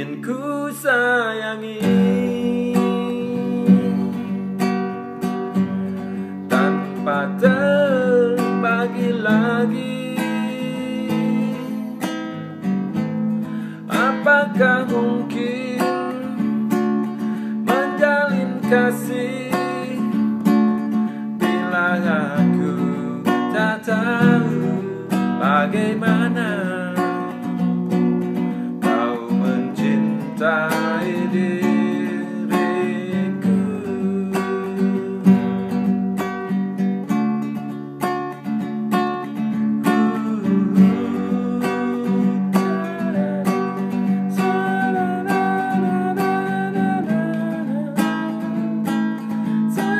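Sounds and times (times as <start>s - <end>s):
man singing: 0.0s - 4.6s, 5.8s - 12.5s, 13.4s - 27.7s, 28.3s - 36.0s, 39.2s - 49.9s
acoustic guitar strumming: 0.0s - 49.9s.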